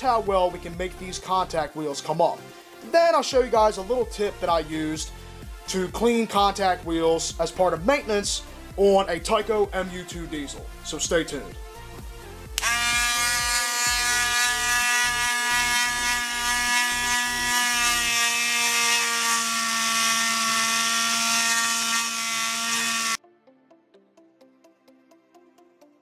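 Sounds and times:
rotary tool high whine: 12.6s - 23.2s
wire wheel scrubbing metal: 12.6s - 23.2s.

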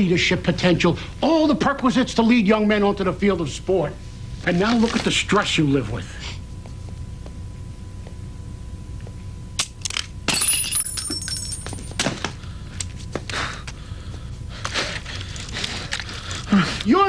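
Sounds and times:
low hum: 0.0s - 17.0s
glass breaking with ringing: 10.3s - 12.2s.

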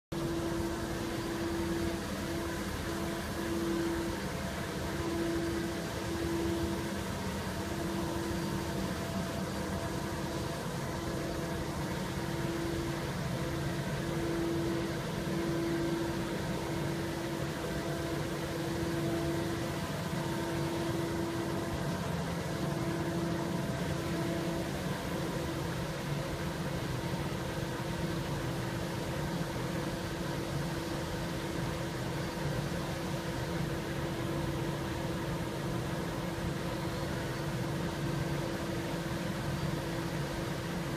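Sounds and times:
street sweeper mechanical hum: 0.1s - 40.9s.

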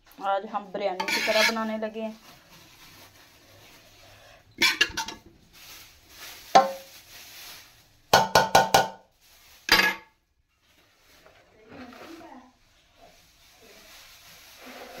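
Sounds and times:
metal spoon clanking on pot: 1.0s - 1.5s, 4.6s - 5.2s.

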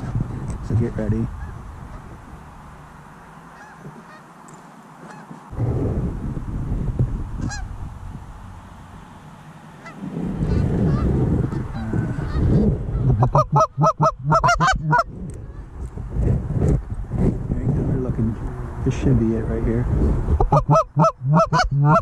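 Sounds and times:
geese honking: 1.3s - 4.4s, 5.0s - 5.5s, 7.4s - 7.7s, 9.7s - 12.6s, 13.2s - 15.7s, 20.5s - 22.0s
low rumble: 5.5s - 22.0s.

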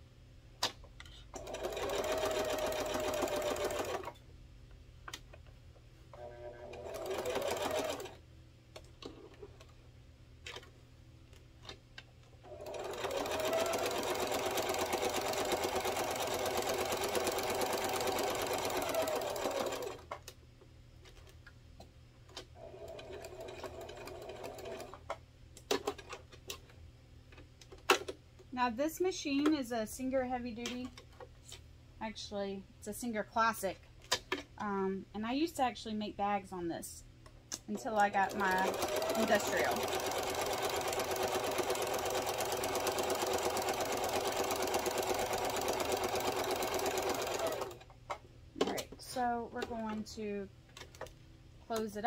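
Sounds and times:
sewing machine running: 1.4s - 4.1s, 6.2s - 8.2s, 12.5s - 20.1s, 22.6s - 25.0s, 38.2s - 47.8s.

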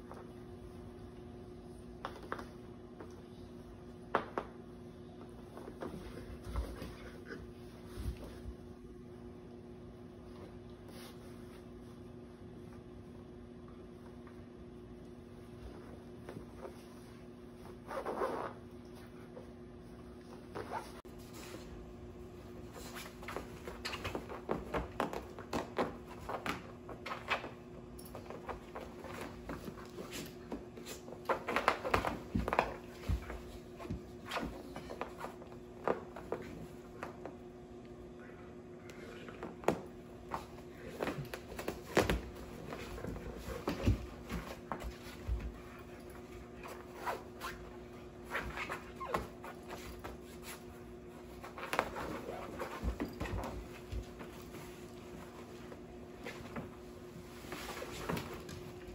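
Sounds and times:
faint steady hum: 0.0s - 58.9s.

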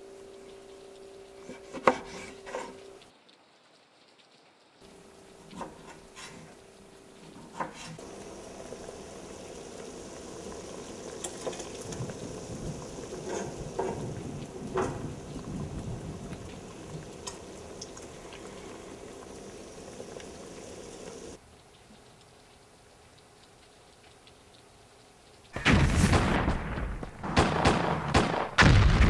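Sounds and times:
food hissing on stove: 1.4s - 3.0s, 5.5s - 6.6s, 7.4s - 21.4s.

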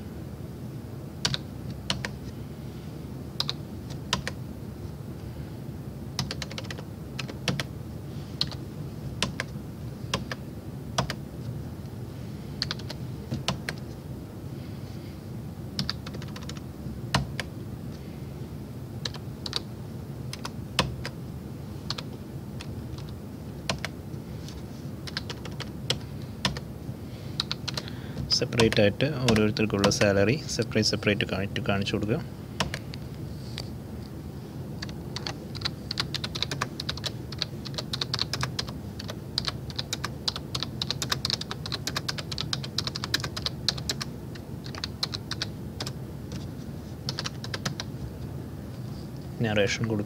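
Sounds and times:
steady low hum: 0.0s - 50.0s
keyboard typing: 1.2s - 2.2s, 3.4s - 4.4s, 6.2s - 7.7s, 8.4s - 8.6s, 9.2s - 10.4s, 11.0s - 11.2s, 12.6s - 13.9s, 15.8s - 17.5s, 19.0s - 19.7s, 20.3s - 21.2s, 21.9s - 24.0s, 25.0s - 26.6s, 27.4s - 30.2s, 32.6s - 32.8s, 34.8s - 46.5s, 47.1s - 47.9s.

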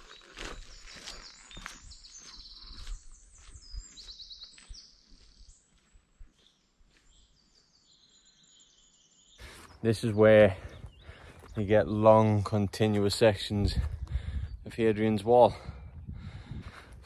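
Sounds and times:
footsteps on wet stony path: 0.0s - 7.6s, 10.3s - 14.4s
small birds singing trills: 0.0s - 16.2s.

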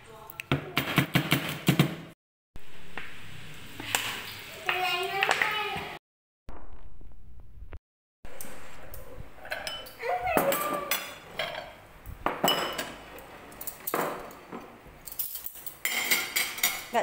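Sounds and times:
utensils clinking against tableware: 9.4s - 17.0s.

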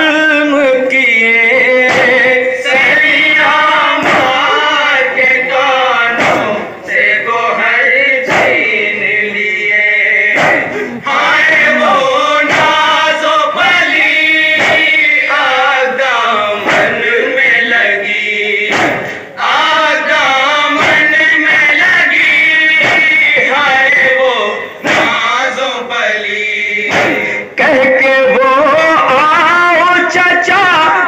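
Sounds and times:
men chanting mourning elegy: 0.0s - 31.0s
short sharp beat: 1.8s - 3.1s, 4.0s - 4.7s, 6.2s - 6.6s, 8.3s - 8.7s, 10.3s - 15.1s, 16.6s - 17.1s, 18.6s - 19.3s, 20.7s - 24.0s, 24.8s - 25.3s, 26.9s - 27.5s.

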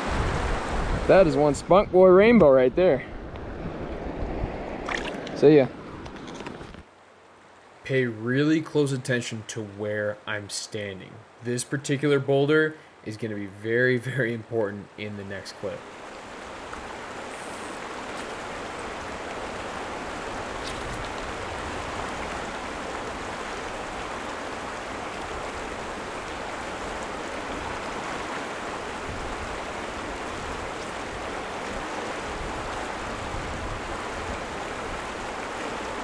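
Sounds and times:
river water running over rocks: 4.5s - 36.0s.

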